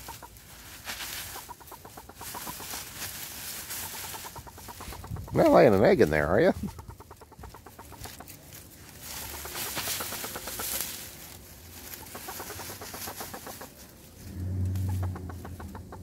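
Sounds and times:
dry leaves rustling: 0.0 - 15.9
hen clucking softly: 0.0 - 16.0
low hum: 13.8 - 16.0.

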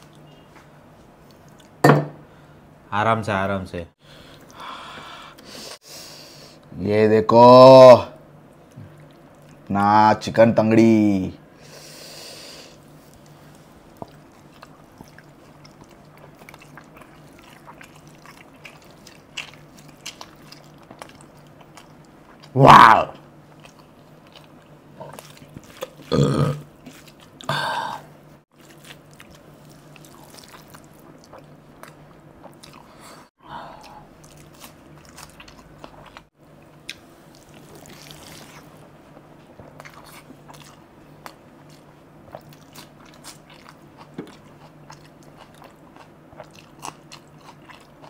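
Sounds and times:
person chewing food: 12.7 - 22.6, 23.2 - 48.0.

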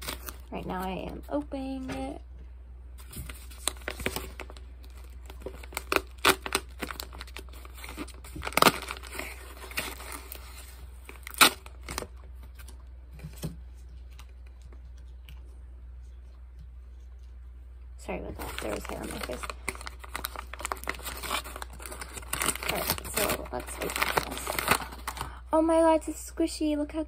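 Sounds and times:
package wrapping tearing: 0.0 - 0.5, 3.3 - 12.8, 18.4 - 25.3.

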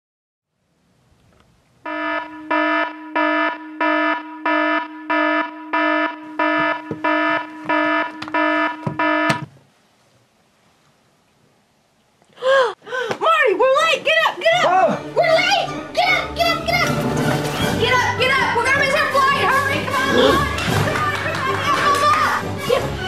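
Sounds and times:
alarm clock beeping: 1.9 - 9.4
soft knocks: 6.5 - 9.6.

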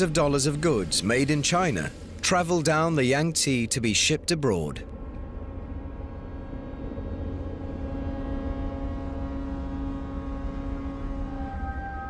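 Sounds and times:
ship engines rumbling: 0.0 - 12.0
held low tone: 4.2 - 12.0.

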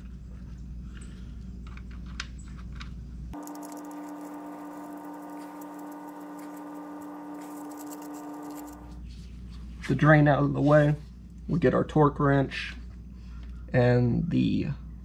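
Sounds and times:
steady hum: 3.4 - 9.0.

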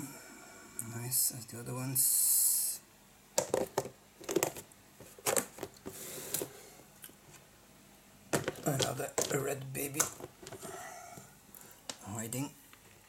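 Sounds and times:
handling knocks and clicks: 3.4 - 6.5, 8.3 - 10.7.

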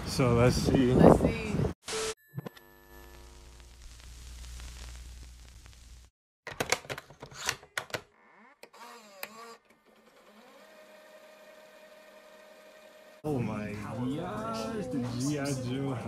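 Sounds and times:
low static hum: 2.0 - 6.1.

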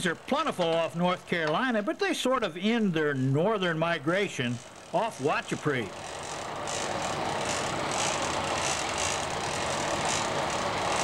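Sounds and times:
boat engines running: 3.8 - 11.0.

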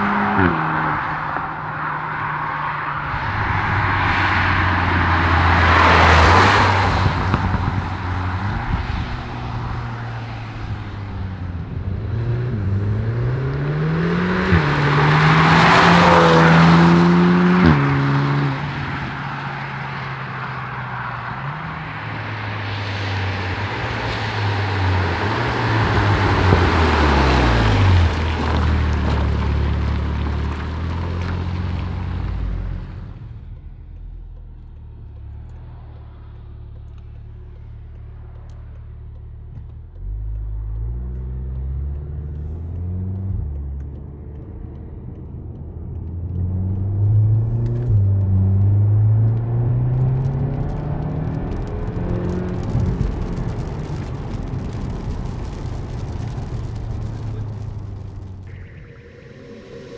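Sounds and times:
car engine driving past: 0.0 - 59.9
tyre hiss on wet road: 52.3 - 58.2.

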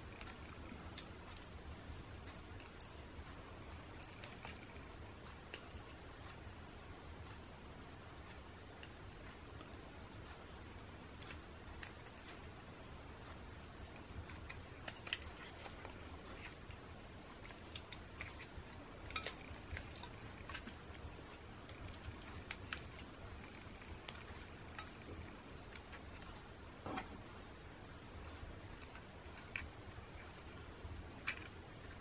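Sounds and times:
small plastic and metal parts clicking: 8.7 - 26.4, 31.2 - 32.0.

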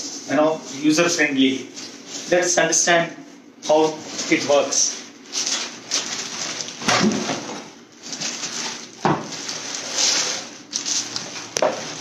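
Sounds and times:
plastic wrapping crinkling: 3.6 - 12.0.

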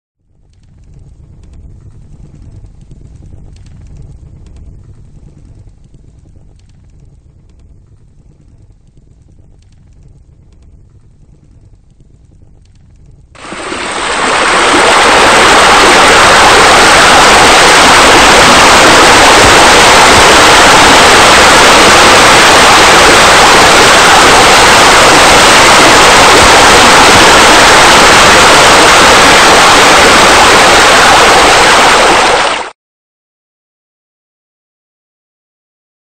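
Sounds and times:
water falling into pool: 13.4 - 32.7.

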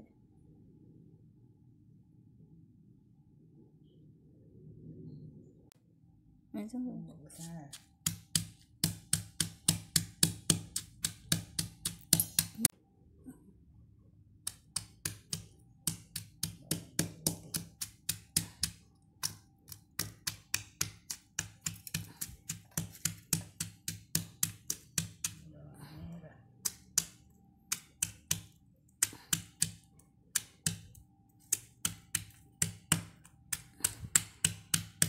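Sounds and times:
stone pestle pounding in mortar: 7.7 - 12.7, 14.5 - 25.4, 30.4 - 35.0.

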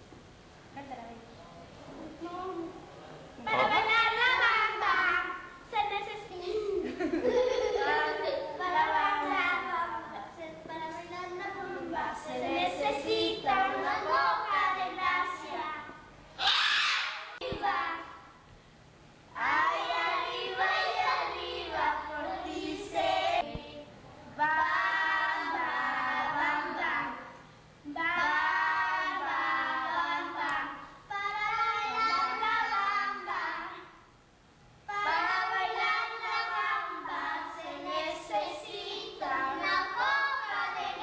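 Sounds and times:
children singing: 19.4 - 23.8, 24.4 - 27.3, 27.9 - 33.9, 34.9 - 41.0.

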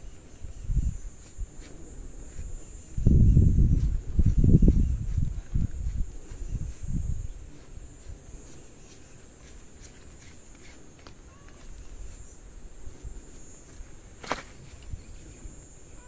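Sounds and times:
insects chirring: 0.0 - 16.0.

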